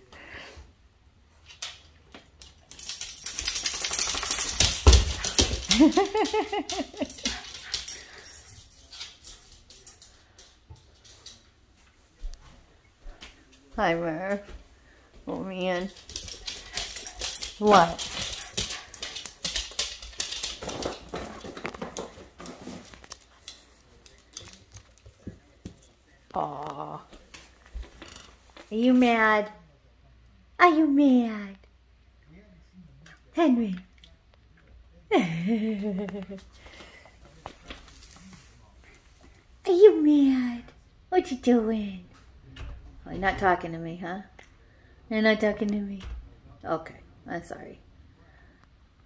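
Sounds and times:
dog claws clicking on floor: 1.4 - 11.5, 15.6 - 28.7.

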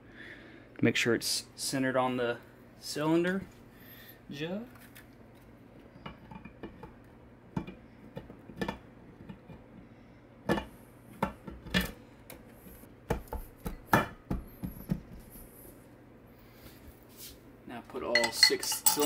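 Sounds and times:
metal knocks and clinks: 18.1 - 19.0.

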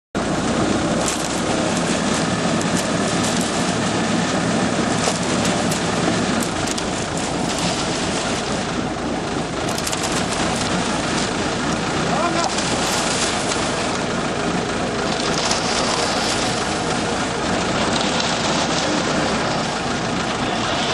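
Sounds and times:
diesel engine rumbling: 0.2 - 20.9
rattles and clicks: 0.9 - 8.8, 9.4 - 14.2.

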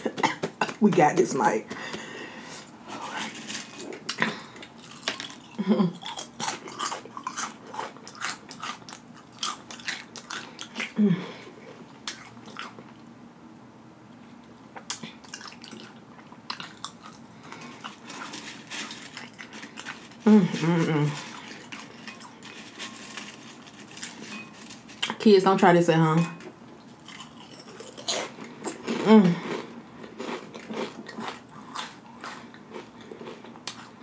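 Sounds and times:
tortilla chips crunched and chewed: 3.0 - 11.0, 12.0 - 13.0, 14.8 - 25.2, 26.8 - 34.0.

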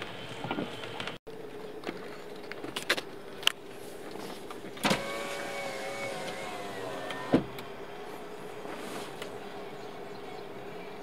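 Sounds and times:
power window click: 4.8 - 7.5
power window clunk: 4.8 - 7.6
power window motor whining: 4.8 - 7.6.

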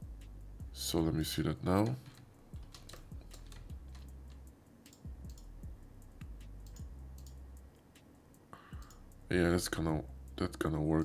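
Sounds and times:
quiet background music: 0.0 - 11.0.

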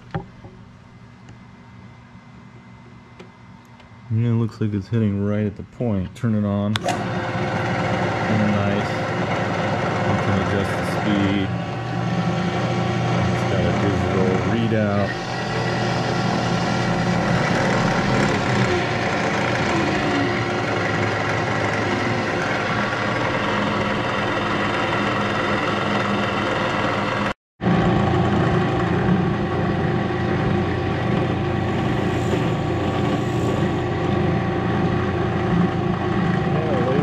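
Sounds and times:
drill press motor hum: 6.7 - 37.0.

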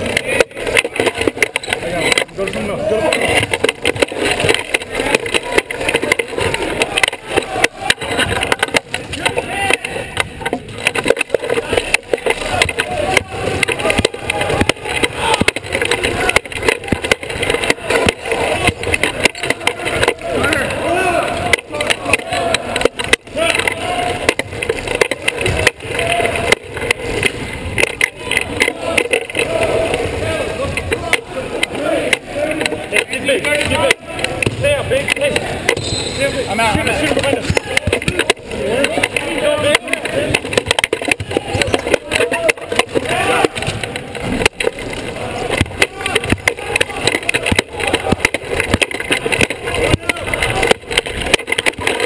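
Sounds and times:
wheelchair rolling rumble: 0.0 - 35.7, 36.8 - 52.0
knocks and rattles: 0.0 - 52.0
rubber tyres squeaking on floor: 0.0 - 52.0
short squeaks: 35.8 - 36.5.

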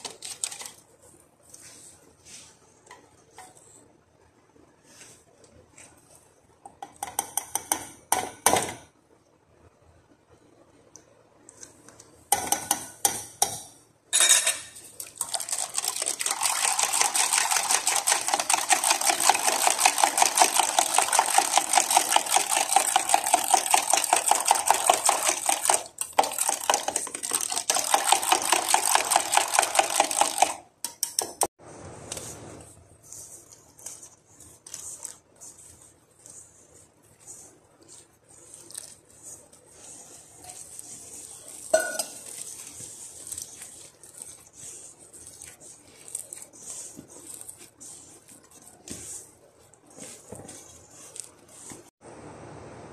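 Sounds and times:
flour being mixed by hand: 0.0 - 13.6, 14.8 - 52.1
whisk beating in metal bowl: 5.8 - 8.8, 12.3 - 13.7, 15.0 - 31.5, 32.4 - 52.0.

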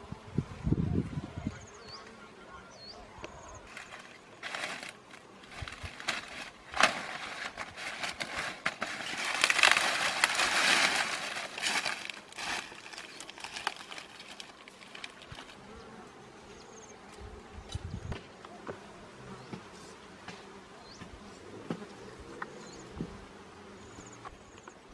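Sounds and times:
dry stalks rustling underfoot: 3.6 - 15.8.

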